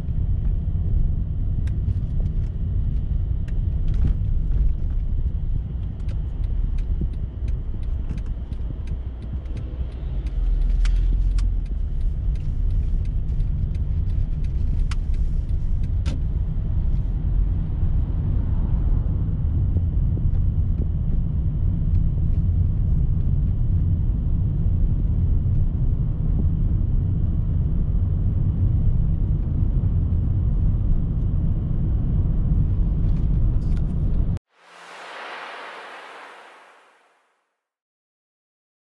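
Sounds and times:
car road noise rumble: 0.0s - 37.1s.

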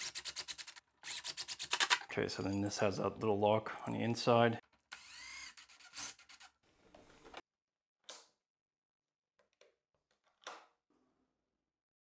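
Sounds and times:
cordless drill driving screw: 4.9s - 6.6s.

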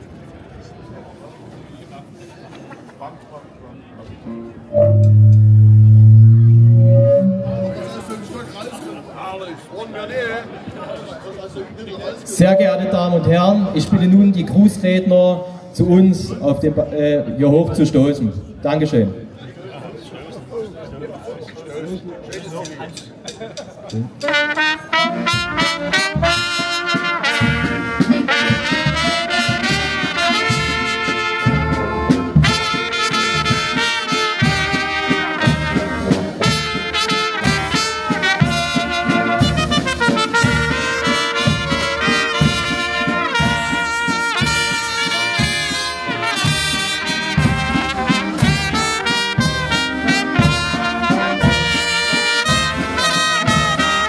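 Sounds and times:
brass band playing a tune: 4.3s - 8.8s, 24.2s - 54.0s.

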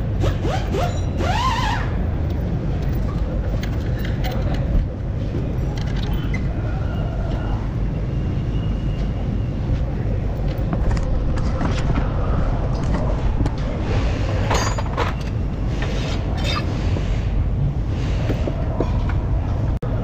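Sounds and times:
steady low rumble: 1.0s - 20.0s
metal parts clinking and knocking: 2.2s - 4.8s, 5.5s - 6.5s, 14.3s - 15.4s.

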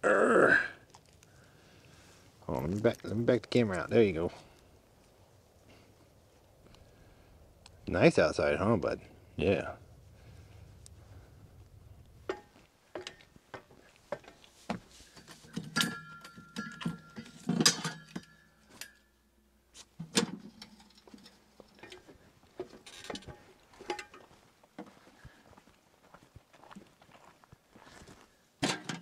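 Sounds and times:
metal camping gear rattling: 12.2s - 19.2s, 19.8s - 24.4s, 28.6s - 29.0s
ringing metal clanks: 15.5s - 19.2s.

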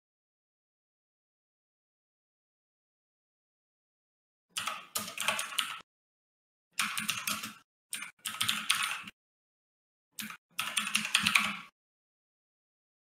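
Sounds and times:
keyboard typing: 4.6s - 5.9s, 6.8s - 9.2s, 10.2s - 11.7s.

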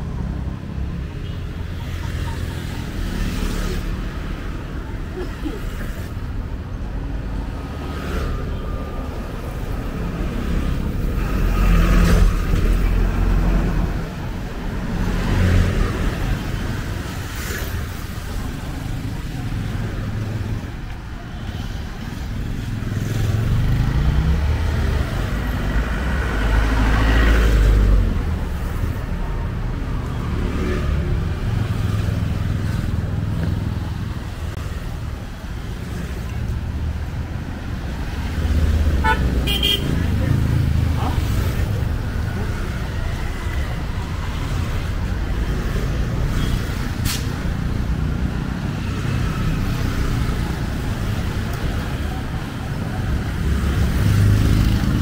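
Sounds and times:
motorcycles and scooters passing: 21.9s - 55.0s.

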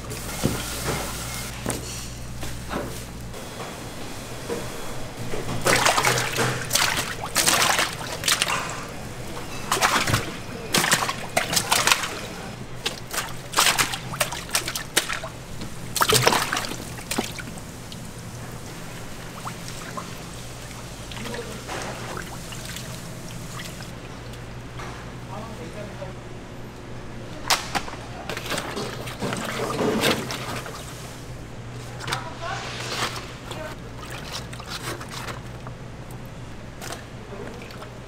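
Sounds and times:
water splashing in a tub: 5.3s - 24.5s, 28.3s - 38.0s.

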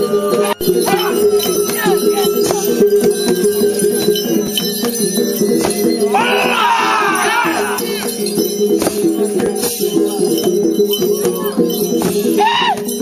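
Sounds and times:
high wavering voices: 0.0s - 4.6s, 5.2s - 8.5s
ringing tones: 0.0s - 13.0s
percussive strikes: 0.3s - 13.0s
jingling: 0.5s - 13.0s.

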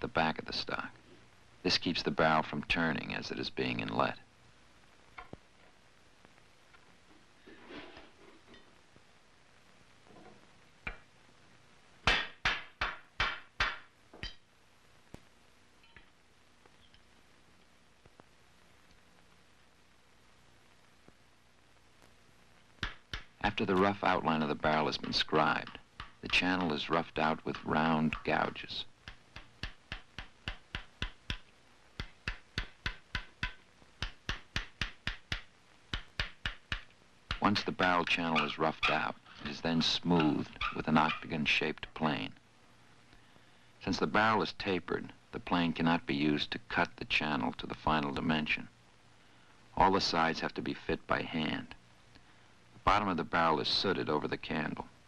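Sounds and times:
hammer striking chisel: 12.1s - 14.4s.

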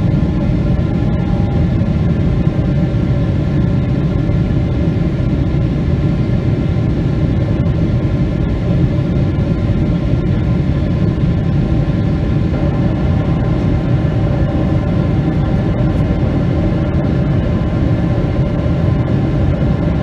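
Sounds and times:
airplane cabin engine rumble: 0.0s - 20.0s
faint steady tones: 11.4s - 20.0s.

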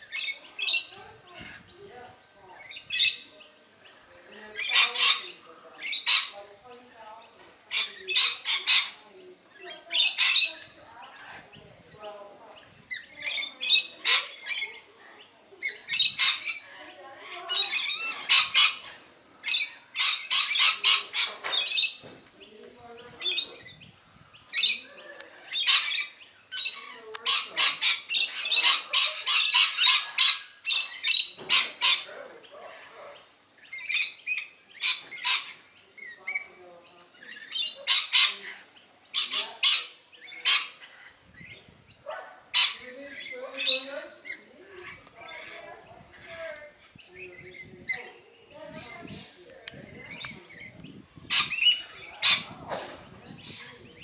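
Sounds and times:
parrots screeching: 4.4s - 6.4s, 7.7s - 9.0s, 9.6s - 11.5s, 12.9s - 14.9s, 15.6s - 22.1s, 24.5s - 46.5s, 49.9s - 53.9s.

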